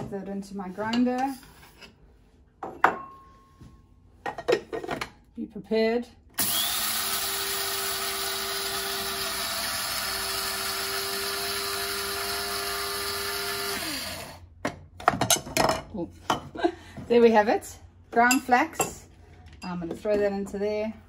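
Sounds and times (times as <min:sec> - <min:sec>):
electric spice grinder grinding: 0:06.4 - 0:14.4.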